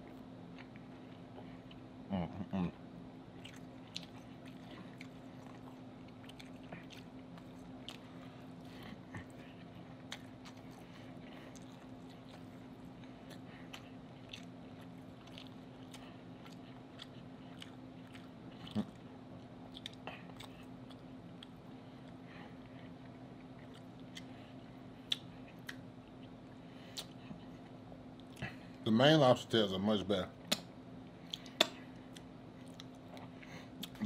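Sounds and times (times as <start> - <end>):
person chewing: 0.0 - 1.9, 3.3 - 28.7, 30.4 - 34.0
faint steady hum: 0.0 - 34.0
wet mouth clicks and smacks: 25.1 - 25.8, 30.5 - 30.7, 31.3 - 33.0.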